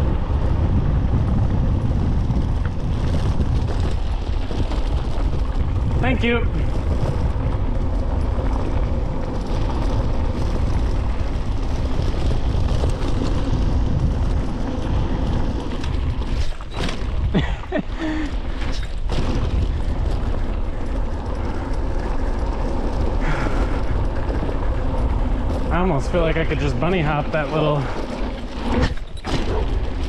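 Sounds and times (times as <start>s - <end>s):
tyres rumbling over dirt trail: 0.0s - 30.0s
wind buffeting microphone: 0.0s - 30.0s.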